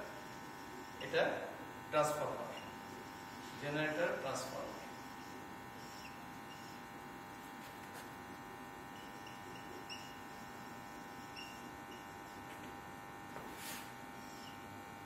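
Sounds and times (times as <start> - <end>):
electrical buzzing hum: 0.0 - 15.0
marker squeaking on whiteboard: 2.4 - 3.5, 4.4 - 6.8, 8.9 - 12.7, 13.4 - 14.6.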